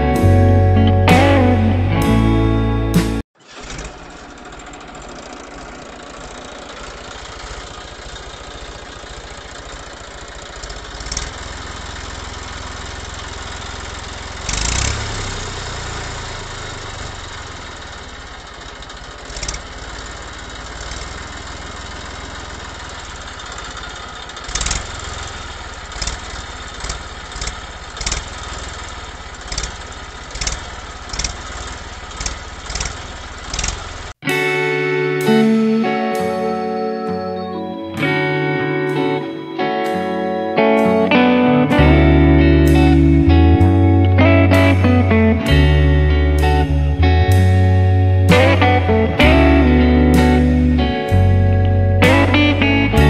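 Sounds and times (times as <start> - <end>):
toy tractor engine running: 3.4 - 34.2.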